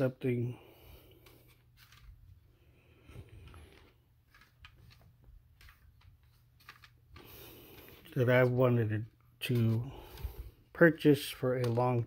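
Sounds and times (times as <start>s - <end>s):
plastic cd cases clicking: 3.4s - 8.1s, 11.5s - 12.0s.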